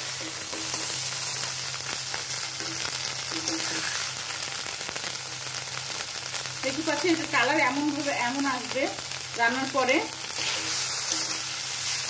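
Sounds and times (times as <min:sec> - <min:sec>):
paste sizzling in oil: 0:00.0 - 0:12.0
metal spatula scraping: 0:02.6 - 0:04.2, 0:10.3 - 0:12.0.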